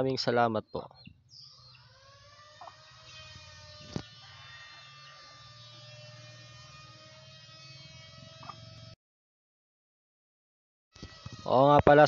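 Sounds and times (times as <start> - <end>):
faint steady buzz: 1.3 - 9.0.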